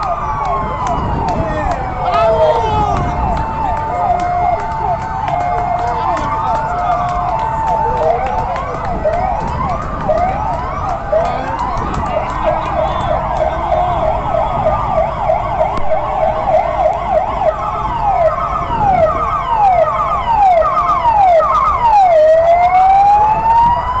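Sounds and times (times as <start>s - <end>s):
fire truck sirens wailing: 0.0s - 24.0s.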